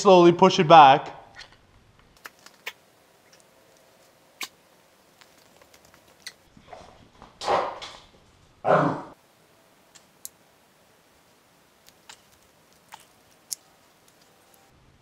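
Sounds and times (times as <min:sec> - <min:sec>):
man grunting with effort: 0:08.7 - 0:09.2.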